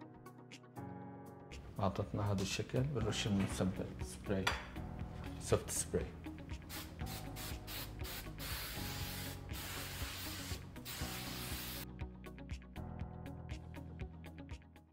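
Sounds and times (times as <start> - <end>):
aerosol hairspray hissing: 6.7 - 11.8.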